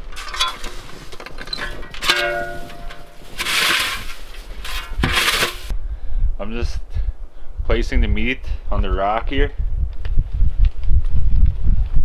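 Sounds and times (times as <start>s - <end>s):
shovel scraping snow: 1.7s - 5.7s.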